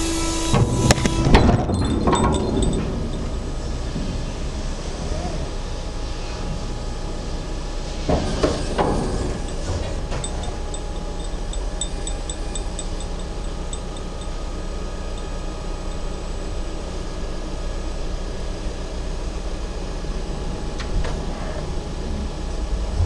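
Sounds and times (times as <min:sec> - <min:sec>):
machinery low even hum: 0:00.0 - 0:23.0
faint rapid ticking: 0:10.3 - 0:16.2.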